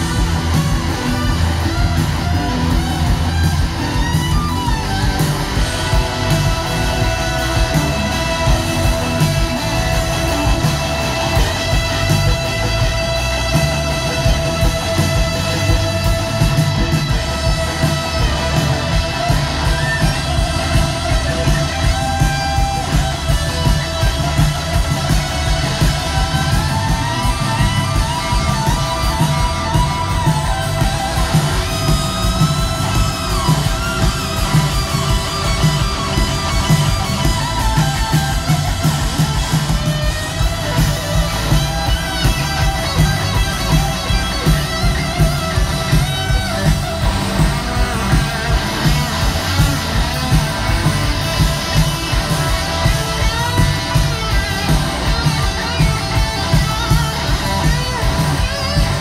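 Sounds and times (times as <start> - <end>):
blues-rock band playing loudly: 0.0 - 59.0
electric guitar sliding lead notes: 0.0 - 59.0.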